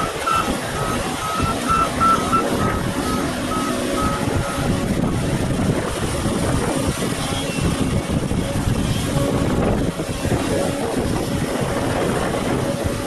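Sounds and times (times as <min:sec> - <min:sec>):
backup alarm beeping: 0:00.0 - 0:04.8
excavator diesel engine: 0:00.0 - 0:13.0.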